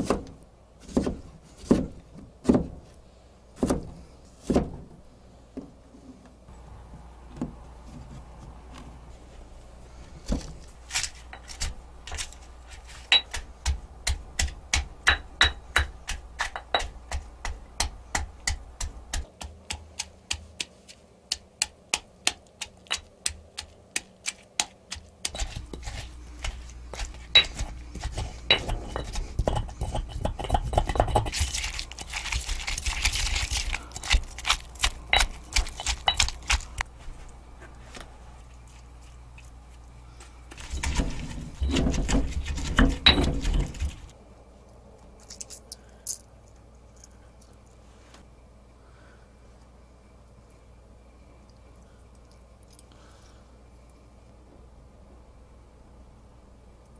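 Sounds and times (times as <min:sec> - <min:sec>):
stone pestle pounding in mortar: 0:13.1 - 0:20.7, 0:21.3 - 0:36.8, 0:40.6 - 0:44.1
stone scraping grind: 0:25.3 - 0:33.1.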